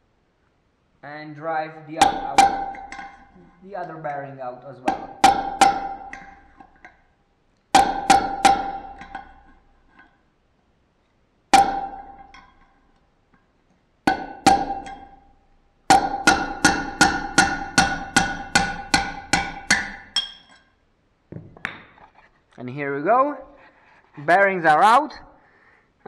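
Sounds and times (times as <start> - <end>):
hammer striking steel bolt: 2.0 - 3.3, 4.9 - 7.0, 7.7 - 9.6, 11.5 - 12.8, 14.1 - 15.3, 15.9 - 20.6.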